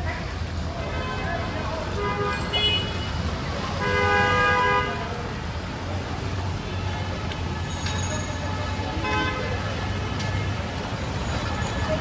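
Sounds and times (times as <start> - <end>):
low traffic rumble: 0.0 - 12.0
vehicle horn toot: 2.0 - 3.1.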